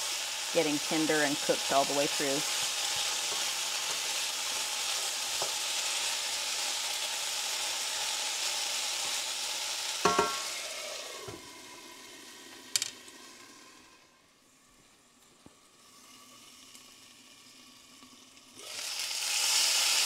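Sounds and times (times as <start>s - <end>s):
potatoes sizzling in a skillet: 0.0s - 20.0s
lid clanking onto skillet: 10.0s - 10.5s.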